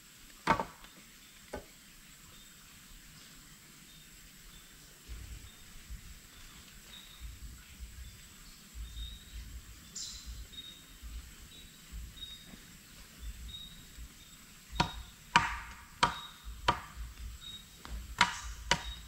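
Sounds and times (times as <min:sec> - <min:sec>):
blade chopping wood: 0:00.4 - 0:00.8, 0:14.8 - 0:17.1, 0:17.8 - 0:19.0.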